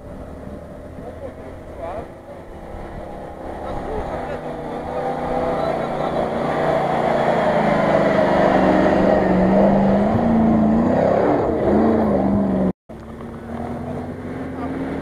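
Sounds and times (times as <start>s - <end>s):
car engine revving under load: 0.0s - 15.0s
steady engine running: 0.0s - 15.0s.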